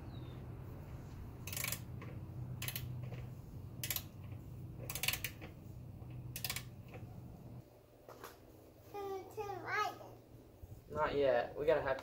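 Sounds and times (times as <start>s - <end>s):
ratchet wrench clicking: 1.4s - 1.9s, 2.6s - 2.9s, 3.8s - 5.5s, 6.3s - 6.8s.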